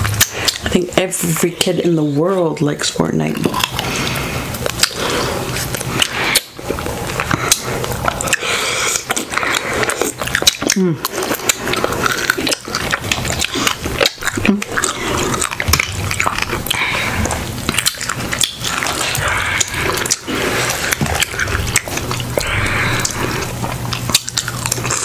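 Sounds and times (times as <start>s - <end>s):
wet chewing and lip-smacking: 0.0s - 1.9s, 3.3s - 25.0s.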